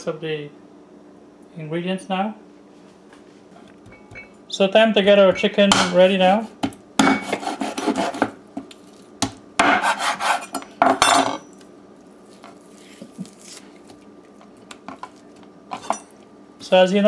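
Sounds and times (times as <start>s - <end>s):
knife chopping on wooden board: 6.6s - 8.4s, 9.2s - 10.4s.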